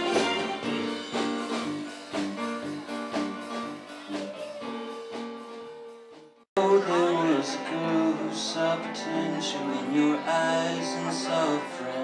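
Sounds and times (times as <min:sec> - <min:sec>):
live band keyboards pulsing chords: 0:00.0 - 0:12.0
live band song: 0:00.0 - 0:12.0.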